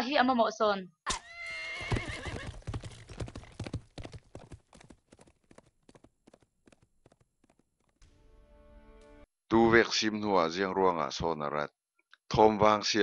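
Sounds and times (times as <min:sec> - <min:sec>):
horse whinnying: 0:01.1 - 0:03.8
horse hoofbeats galloping: 0:01.6 - 0:08.1.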